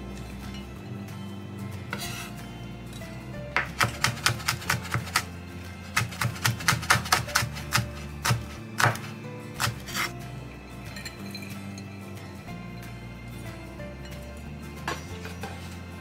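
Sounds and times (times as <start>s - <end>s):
knife chopping on wooden board: 3.6s - 5.3s, 5.9s - 10.1s.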